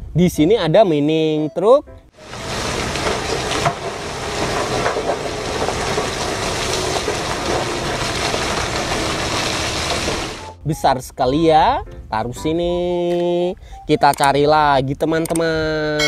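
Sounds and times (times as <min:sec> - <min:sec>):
rock pouring from truck bed: 0:02.2 - 0:10.6
low rumble: 0:02.2 - 0:10.7.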